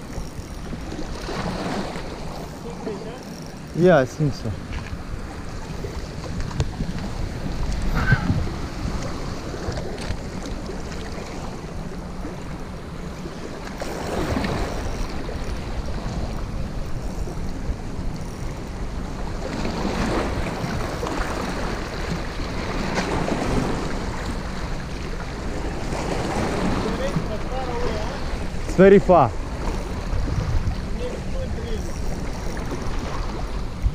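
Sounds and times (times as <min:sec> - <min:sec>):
sea waves washing onto shore: 0:00.0 - 0:18.1, 0:18.7 - 0:33.9
wind buffeting microphone: 0:00.0 - 0:33.9.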